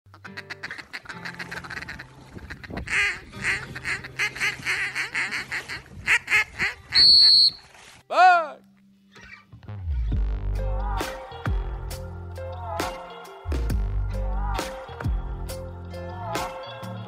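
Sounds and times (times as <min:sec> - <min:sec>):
duck quacking: 0:00.1 - 0:07.6
shrill whistle blast: 0:07.0 - 0:07.7.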